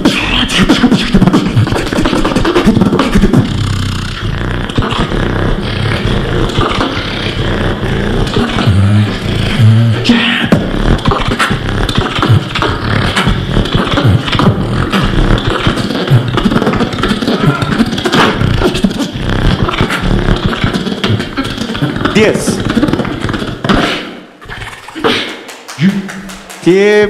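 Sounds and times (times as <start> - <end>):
beatboxing into a microphone: 0.0 - 27.0.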